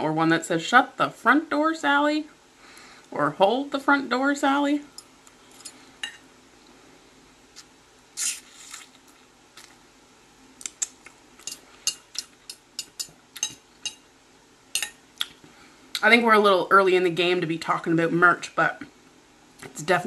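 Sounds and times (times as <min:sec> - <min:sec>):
noodle slurp: 0:08.2 - 0:09.0.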